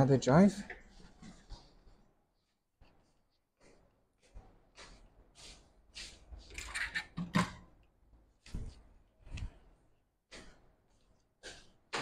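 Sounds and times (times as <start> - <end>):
objects rustling and knocking: 0.6 - 2.5.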